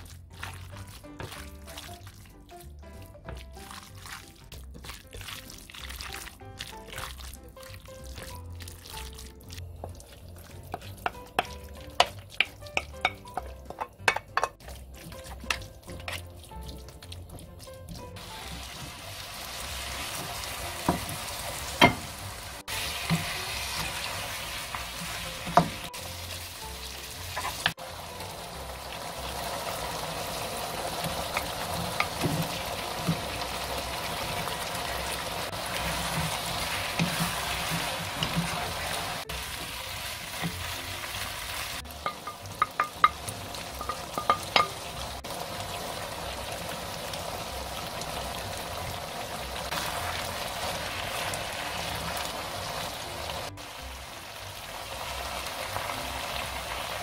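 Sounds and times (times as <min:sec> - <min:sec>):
meat sizzling in a wok: 0:00.0 - 0:57.0
wooden spatula knocking: 0:10.6 - 0:19.0, 0:20.2 - 0:22.1, 0:25.4 - 0:25.9, 0:31.0 - 0:33.4, 0:42.0 - 0:45.0.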